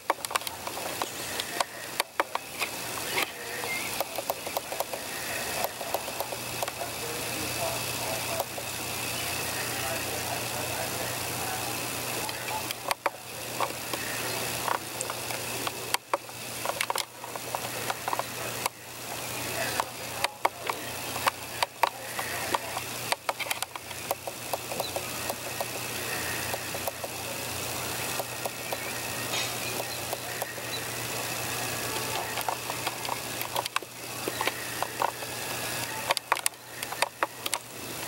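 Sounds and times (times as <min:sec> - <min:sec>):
sharp clicks and knocks: 0:00.0 - 0:06.8, 0:12.2 - 0:18.8, 0:19.7 - 0:25.8, 0:26.4 - 0:27.2, 0:31.9 - 0:37.7
mechanical hum: 0:00.0 - 0:38.0.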